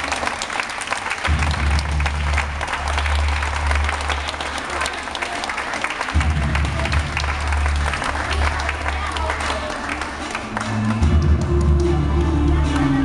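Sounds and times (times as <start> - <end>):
audience applauding: 0.0 - 13.0
music with deep bass line: 1.3 - 4.4, 6.2 - 8.3, 10.5 - 13.0.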